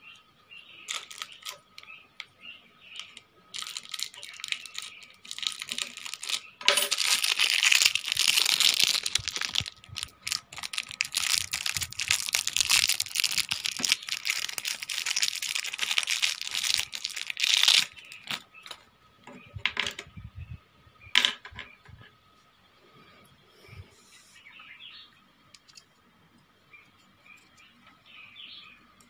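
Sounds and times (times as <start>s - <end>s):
plastic wrapping crinkling: 0.9s - 1.9s, 2.9s - 18.8s.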